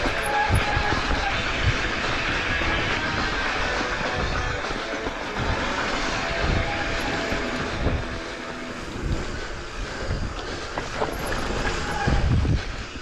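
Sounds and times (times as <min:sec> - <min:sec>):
bike tyres rumbling on trail: 0:00.0 - 0:13.0
wind buffeting microphone: 0:00.0 - 0:13.0.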